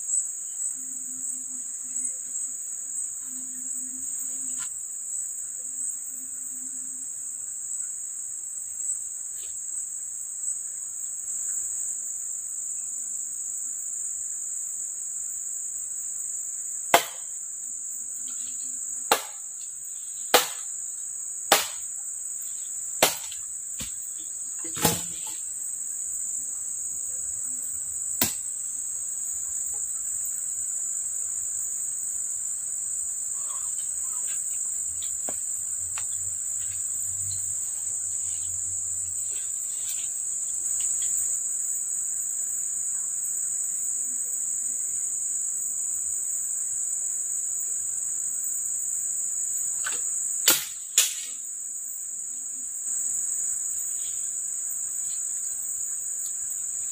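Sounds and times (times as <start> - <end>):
insect chorus: 0.0 - 56.9
sharp knocks on wood: 17.0 - 17.2, 19.1 - 19.4, 20.3 - 20.6, 21.5 - 21.8.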